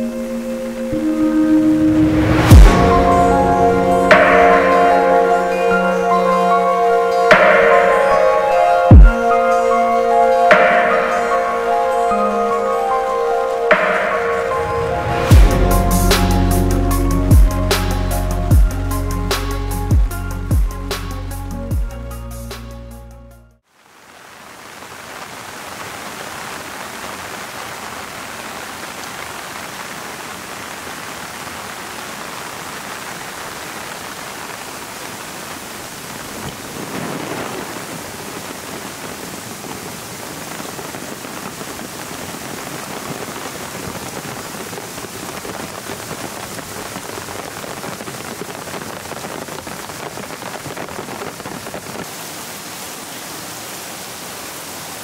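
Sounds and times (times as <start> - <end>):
heavy rain on leaves: 0.0 - 6.6, 13.6 - 17.4, 23.6 - 55.0.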